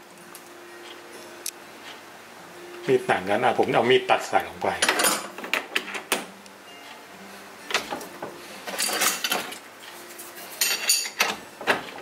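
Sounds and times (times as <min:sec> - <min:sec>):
faint steady hum: 0:00.0 - 0:05.4.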